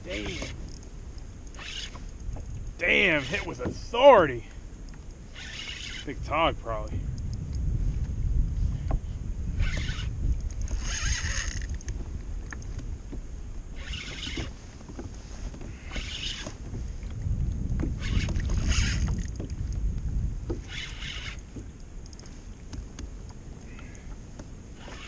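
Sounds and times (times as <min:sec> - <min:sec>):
fishing reel spinning: 0:00.0 - 0:00.8, 0:01.5 - 0:02.1, 0:02.9 - 0:03.6, 0:05.3 - 0:06.1, 0:09.6 - 0:11.9, 0:13.7 - 0:14.5, 0:15.8 - 0:16.5, 0:18.0 - 0:19.4, 0:20.6 - 0:21.5, 0:24.8 - 0:25.0
wind rumble on microphone: 0:00.0 - 0:25.0.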